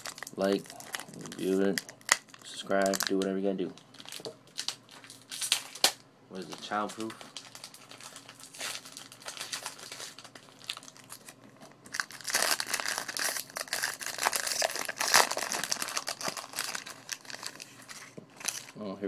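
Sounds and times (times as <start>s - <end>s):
foil wrapper crinkling and tearing: 0.0s - 18.8s.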